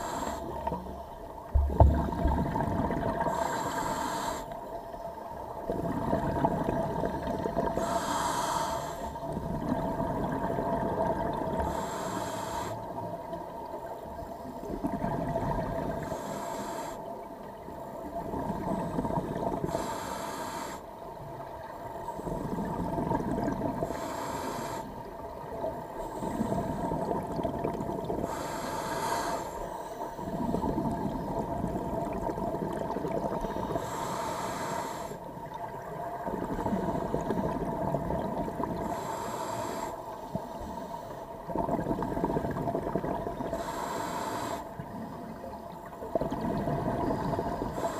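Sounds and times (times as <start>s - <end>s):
regulator hissing inhale: 0.0s - 0.8s, 3.2s - 4.6s, 7.8s - 9.2s, 11.6s - 13.0s, 16.0s - 17.1s, 19.6s - 20.9s, 23.8s - 25.0s, 26.0s - 27.1s, 28.2s - 30.4s, 33.4s - 35.3s, 38.8s - 41.4s, 43.5s - 45.1s, 47.4s - 47.9s
exhaled air bubbling: 0.0s - 29.4s, 30.2s - 40.5s, 41.3s - 47.9s.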